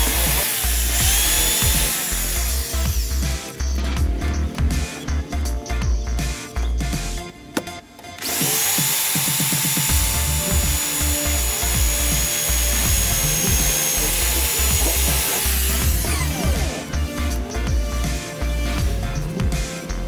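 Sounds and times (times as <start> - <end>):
electric drill whining: 0.0 - 3.6, 8.2 - 18.1
music with pulsing bass: 0.0 - 7.5, 8.3 - 20.0.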